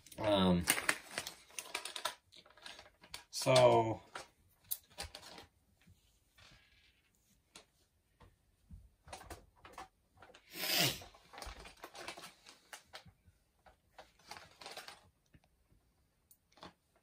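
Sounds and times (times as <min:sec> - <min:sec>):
plastic packaging crinkling: 0:00.0 - 0:03.5, 0:04.1 - 0:05.5, 0:11.0 - 0:13.0, 0:14.0 - 0:15.1.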